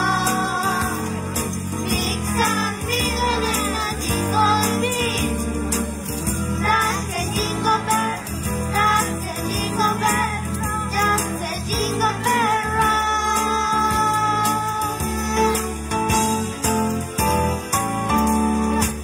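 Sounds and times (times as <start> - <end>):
children's group singing: 0.0 - 5.5, 6.6 - 16.3
instrumental accompaniment: 0.0 - 19.0
tambourine and shakers jingling: 0.0 - 19.0.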